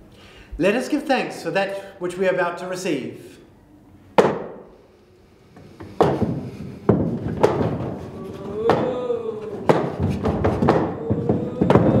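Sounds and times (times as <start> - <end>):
fists banging on a table: 5.9 - 9.0, 9.6 - 12.0
person holding a long note: 8.0 - 12.0.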